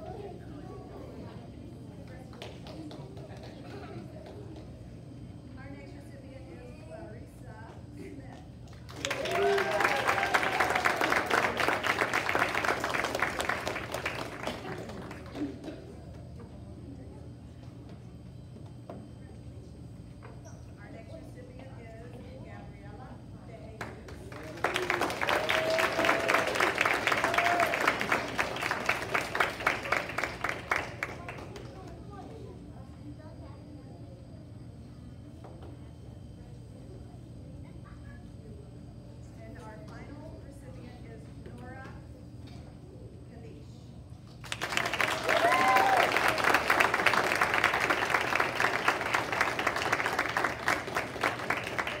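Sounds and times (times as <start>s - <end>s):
audience applauding: 8.9s - 15.8s, 24.2s - 31.7s, 44.4s - 52.0s.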